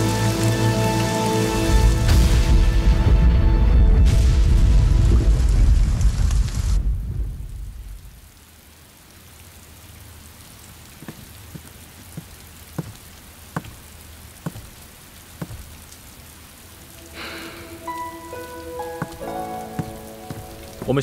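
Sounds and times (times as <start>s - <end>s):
steady rain falling: 0.0s - 21.0s
water drops dripping: 10.8s - 16.3s, 17.0s - 20.9s.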